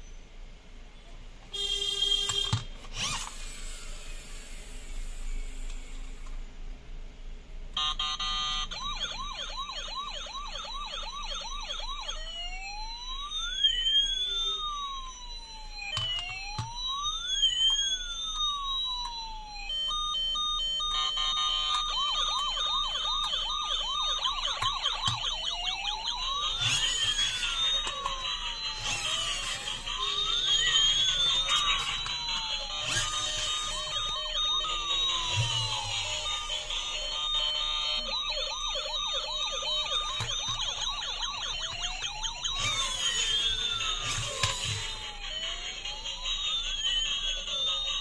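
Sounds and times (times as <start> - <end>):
toy electronic siren: 1.6 - 6.4, 7.8 - 48.0
toy clicks: 15.9 - 18.4, 21.4 - 38.7, 39.4 - 48.0.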